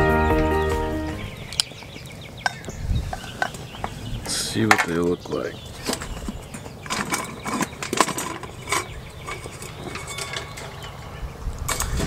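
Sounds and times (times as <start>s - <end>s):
metal tongs clinking on pot lid: 6.9s - 11.2s.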